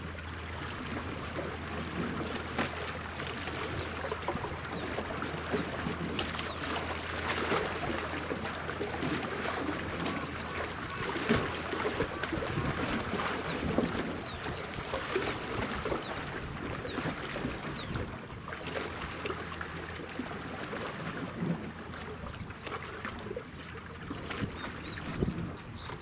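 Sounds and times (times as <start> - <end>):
ship engines humming: 0.0 - 22.4
wind and water noise: 0.0 - 26.0
small bird whistling: 12.8 - 18.6.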